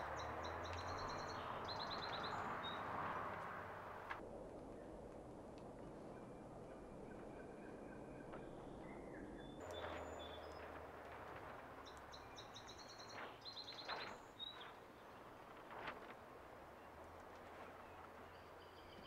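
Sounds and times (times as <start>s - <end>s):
faint bird chirping: 0.0s - 3.2s, 6.0s - 15.4s, 16.8s - 19.0s
soft clicks of timing belt: 0.1s - 2.4s.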